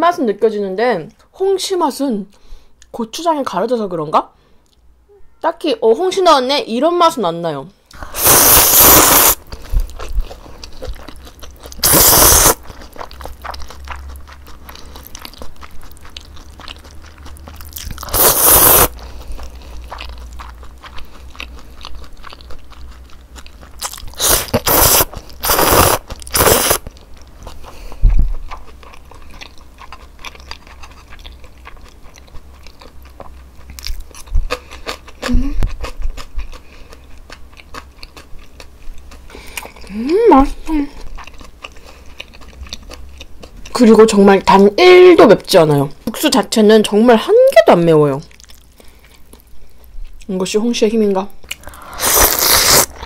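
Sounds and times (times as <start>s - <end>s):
wet chewing: 7.9s - 45.3s, 48.0s - 53.0s
person slurping noodles: 8.0s - 9.4s, 11.8s - 12.6s, 18.0s - 19.0s, 24.2s - 26.9s, 51.7s - 53.0s.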